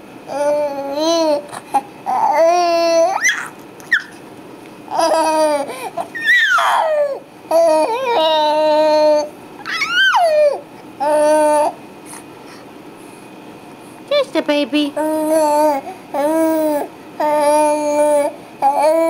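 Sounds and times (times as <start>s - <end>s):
baby cooing and babbling: 0.3s - 4.1s, 4.9s - 11.8s, 15.0s - 19.0s
baby squealing: 2.1s - 4.2s, 4.9s - 11.8s.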